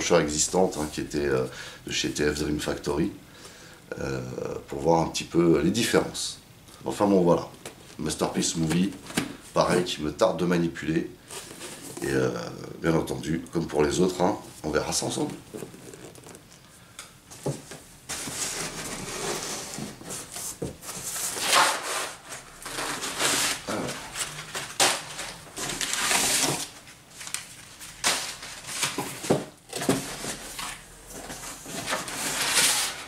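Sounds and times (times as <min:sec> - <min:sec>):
cardboard rustling and scraping: 0:07.8 - 0:09.9, 0:11.2 - 0:12.3, 0:14.8 - 0:16.6, 0:17.3 - 0:33.0.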